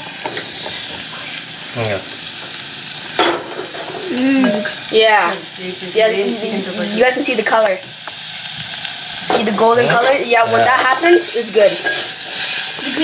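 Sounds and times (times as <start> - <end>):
food sizzling in oil: 0.0 - 13.0
person speaking: 9.4 - 11.1.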